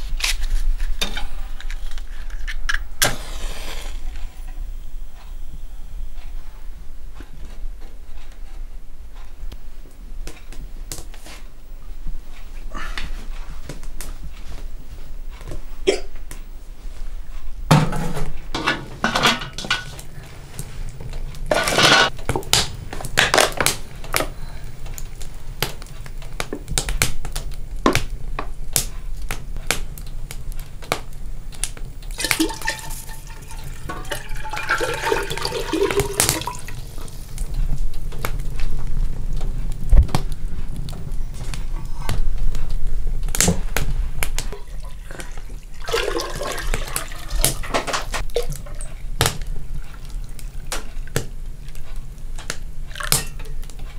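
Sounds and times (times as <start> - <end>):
oil pouring into pot: 32.1 - 36.8, 44.5 - 47.6.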